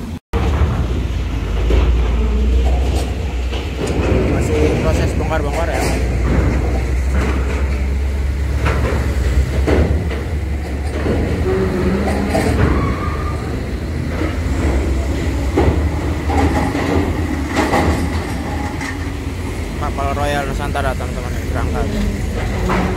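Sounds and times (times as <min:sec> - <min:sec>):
diesel engines rumbling: 0:00.0 - 0:22.9
wheels clanking on steel plates: 0:00.0 - 0:22.9.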